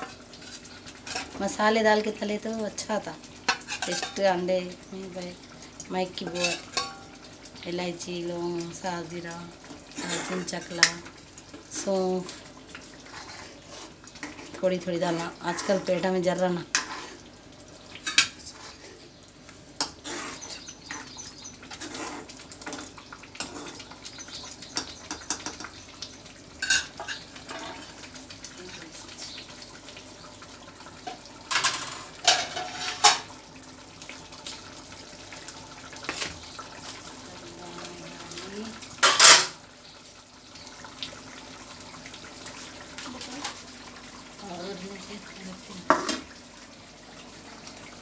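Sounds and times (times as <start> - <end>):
curry simmering: 0.0 - 48.0
metal ladle clinking on pot: 6.3 - 7.0.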